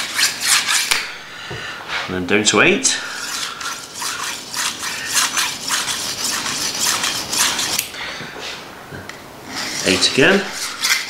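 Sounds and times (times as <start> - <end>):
knife scraping on sharpening stone: 0.0 - 1.0, 3.1 - 7.9, 9.5 - 11.0.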